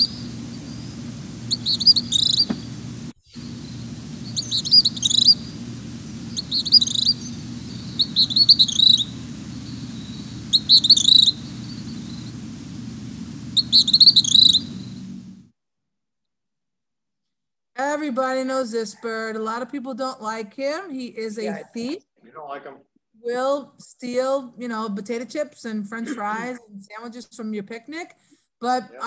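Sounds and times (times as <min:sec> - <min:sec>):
bird chattering calls: 0:00.0 - 0:15.3
low background hum: 0:00.0 - 0:15.5, 0:24.6 - 0:27.3.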